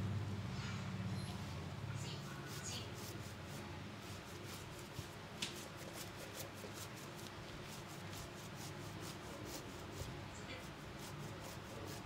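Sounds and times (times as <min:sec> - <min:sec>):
fingertips scratching wet hair: 0:02.0 - 0:12.0.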